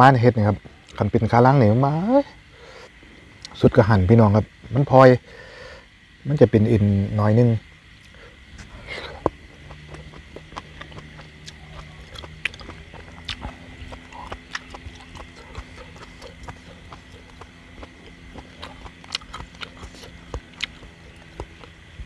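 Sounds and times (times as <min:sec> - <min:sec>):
open-mouthed chewing: 0:08.0 - 0:22.0.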